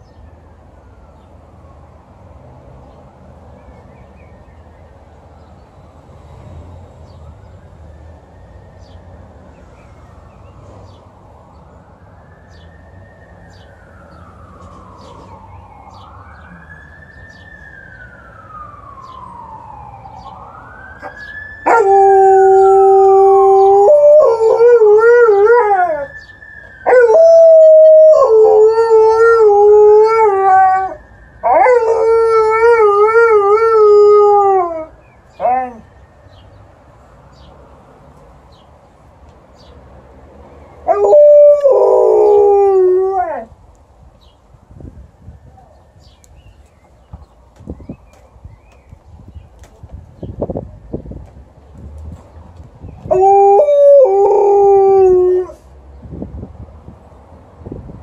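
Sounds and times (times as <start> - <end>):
ambulance siren wailing: 7.0 - 36.5, 40.8 - 43.5, 53.0 - 55.6
dog howling: 40.9 - 43.5.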